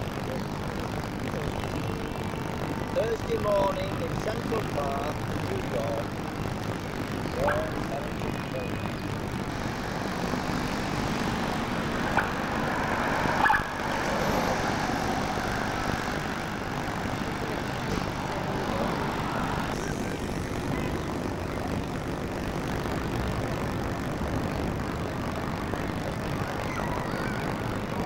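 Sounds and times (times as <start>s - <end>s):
traffic noise: 0.0s - 28.0s
car driving past: 9.5s - 20.2s.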